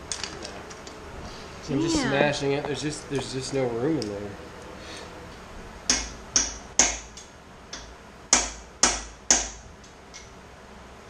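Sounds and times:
hammer striking metal chisel: 5.9 - 7.1, 8.3 - 9.6.

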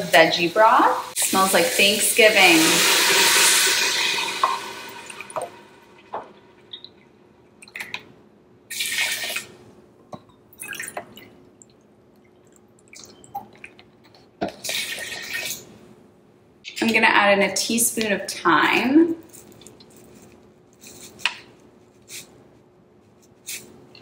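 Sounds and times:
liquid dripping: 10.2 - 14.6.

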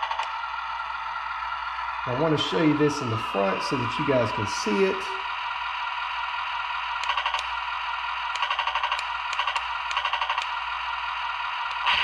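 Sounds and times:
electronic engine hum: 0.0 - 12.0
simulated machine-gun rattling: 7.0 - 7.5, 8.4 - 10.6.

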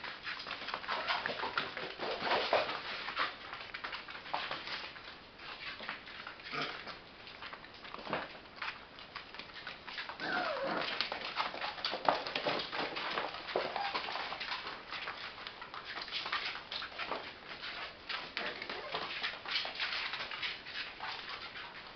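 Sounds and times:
paws clicking on floor: 0.0 - 21.9
puppy whimpering: 10.2 - 11.0, 13.6 - 14.2.

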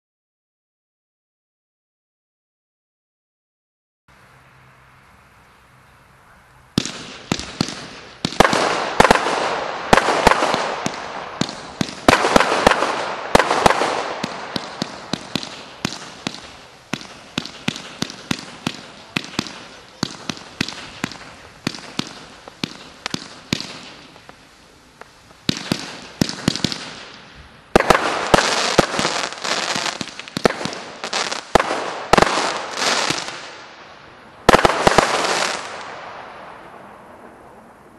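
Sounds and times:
firework crackling: 6.5 - 37.9
firework launch and burst reports: 6.8 - 24.4.

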